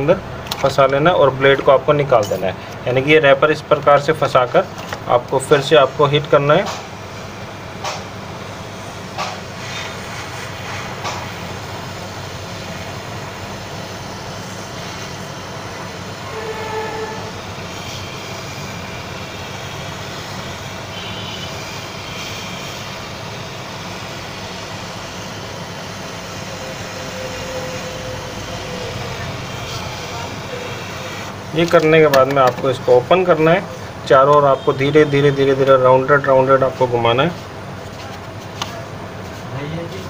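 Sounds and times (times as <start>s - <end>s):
hot air gun blowing: 6.7s - 31.7s.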